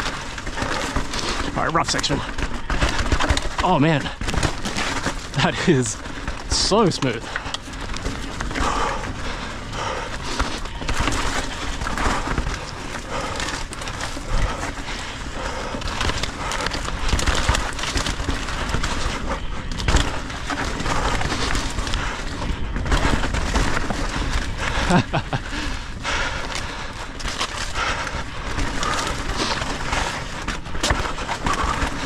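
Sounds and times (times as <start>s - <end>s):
bike knocks and rattles: 0.0s - 32.0s
bike tyres rolling over dirt: 0.0s - 32.0s.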